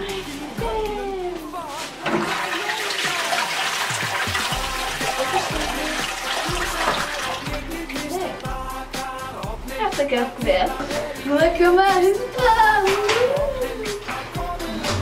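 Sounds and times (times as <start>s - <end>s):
background music: 0.0s - 15.0s
toilet flushing: 2.0s - 7.6s.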